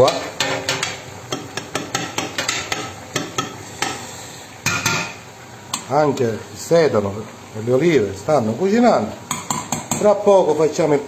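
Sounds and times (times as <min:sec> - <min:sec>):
metal tapping on pots: 0:00.0 - 0:05.9, 0:09.3 - 0:10.2
cooking hiss: 0:00.0 - 0:11.0.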